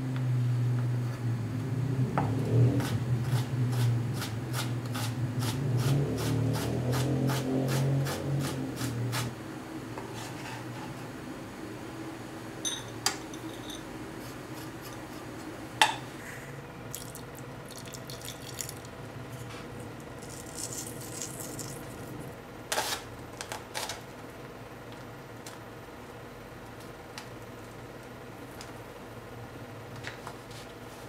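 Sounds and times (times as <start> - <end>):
ceramic bowl clink: 12.6 - 13.9.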